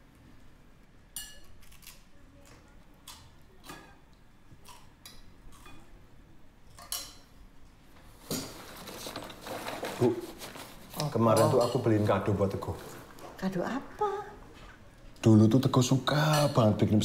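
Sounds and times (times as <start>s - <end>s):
spoons and crockery clinking: 11.3s - 12.0s.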